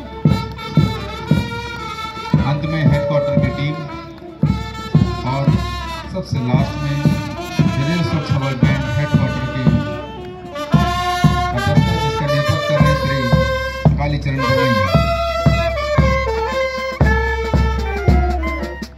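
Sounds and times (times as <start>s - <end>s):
bass drum and snare beating: 0.0s - 18.9s
marching brass band playing: 0.0s - 18.9s.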